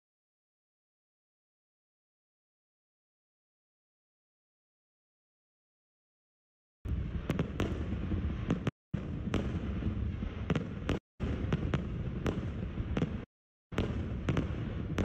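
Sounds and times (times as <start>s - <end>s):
fireworks sharp cracks: 6.9s - 15.0s.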